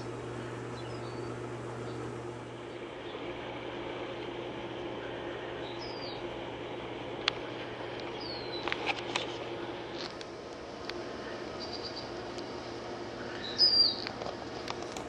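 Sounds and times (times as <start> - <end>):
low hum and hiss: 0.0 - 15.0
bird chirps: 0.7 - 2.0, 5.6 - 6.2, 8.2 - 8.6, 13.4 - 14.0.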